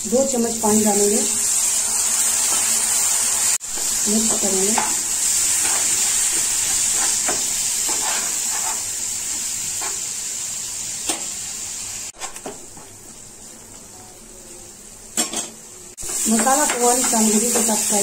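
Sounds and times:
masala sizzling in a frying pan: 0.0 - 18.0
spatula scraping a pan: 5.5 - 9.0.

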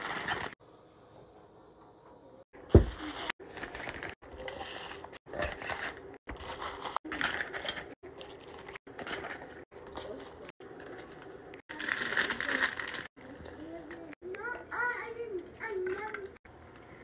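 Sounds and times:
plastic pouches crinkling: 0.0 - 0.6, 2.9 - 14.0.

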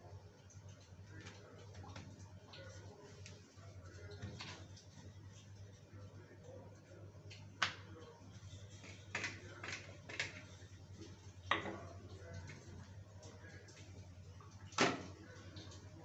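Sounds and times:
cookware knocking and clinking: 11.5 - 11.9.

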